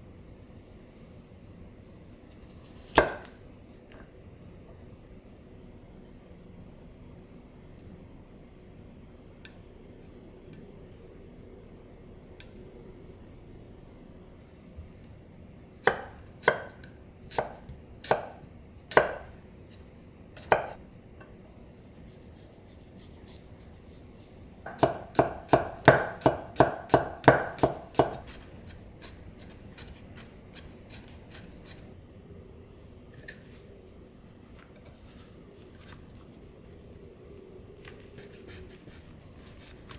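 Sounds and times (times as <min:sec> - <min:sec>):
knife chopping on wooden board: 0:02.8 - 0:03.3, 0:15.8 - 0:19.3, 0:20.4 - 0:20.8, 0:24.7 - 0:28.4.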